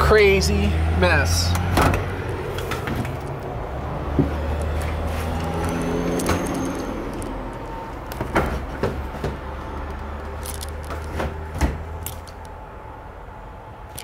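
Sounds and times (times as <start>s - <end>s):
sharp knocks and clicks: 8.0s - 12.6s.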